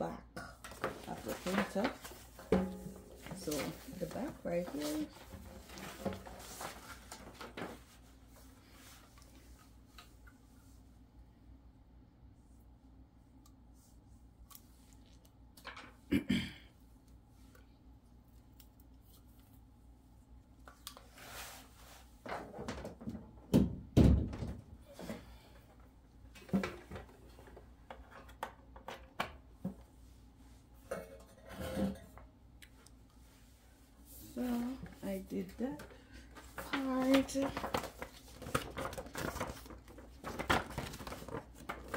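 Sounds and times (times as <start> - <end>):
cable rustling: 0.6 - 10.1, 34.3 - 41.9
handling knocks and thumps: 0.7 - 6.6.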